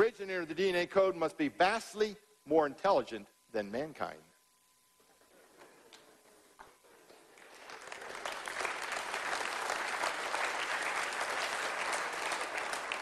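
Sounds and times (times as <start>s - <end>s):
audience clapping: 5.9s - 13.0s.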